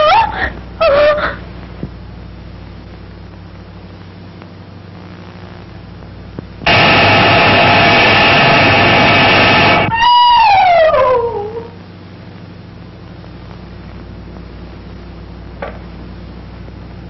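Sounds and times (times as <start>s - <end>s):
dental drill running: 6.7s - 10.0s
wail sliding down in pitch: 9.8s - 11.7s.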